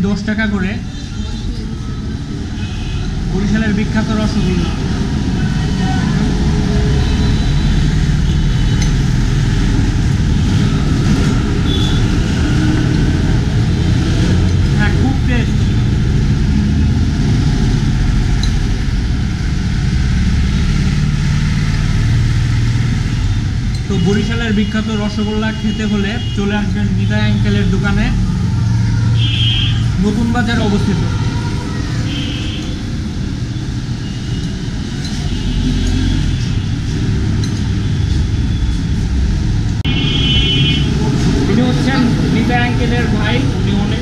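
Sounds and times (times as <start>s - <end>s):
road traffic rumble: 0.0s - 44.0s.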